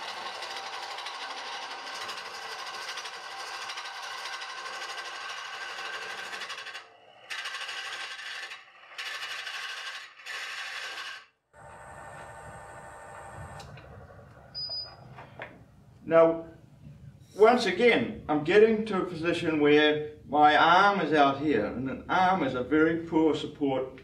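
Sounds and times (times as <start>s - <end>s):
lathe tool scraping wood: 0.0s - 13.4s.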